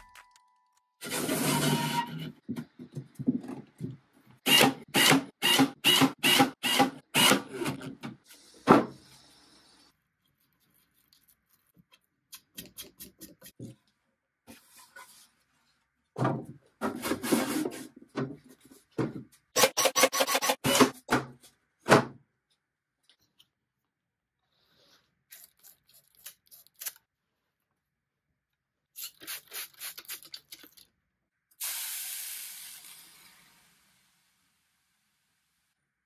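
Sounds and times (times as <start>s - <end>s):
wooden knocks and clatters: 2.4s - 4.1s
spray bottle squirts: 29.0s - 30.6s.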